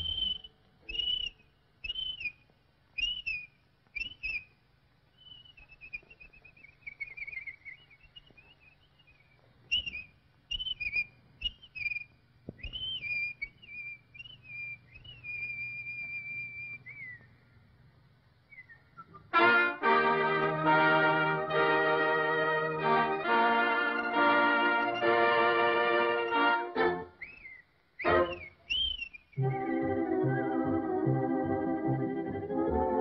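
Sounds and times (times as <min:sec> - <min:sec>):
cartoon bird whistling: 0:00.0 - 0:02.4, 0:03.0 - 0:04.5, 0:05.2 - 0:17.3, 0:26.0 - 0:30.8.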